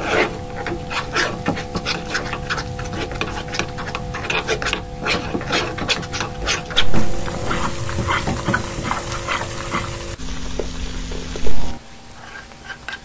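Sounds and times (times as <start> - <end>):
metal spoon scraping saucepan: 0.0 - 10.2
faint steady hum: 0.0 - 13.0.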